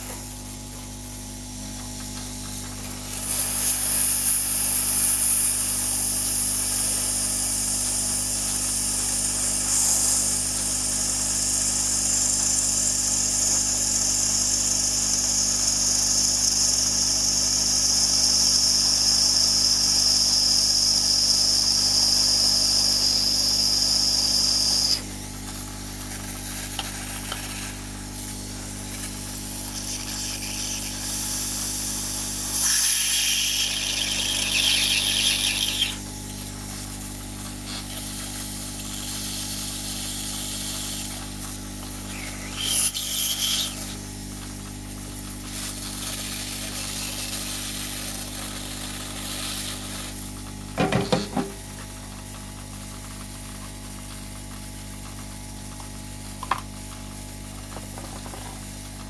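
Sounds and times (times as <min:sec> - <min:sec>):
hot air gun hissing: 0:00.0 - 0:51.6.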